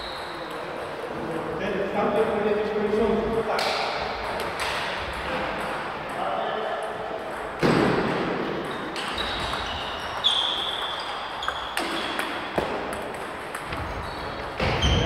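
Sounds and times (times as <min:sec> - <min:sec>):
table tennis balls clicking: 0:08.6 - 0:15.0.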